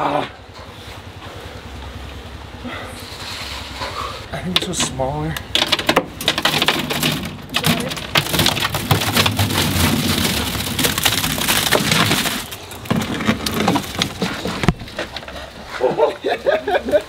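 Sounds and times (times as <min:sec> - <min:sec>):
wet concrete pouring and slopping: 0:06.4 - 0:17.0.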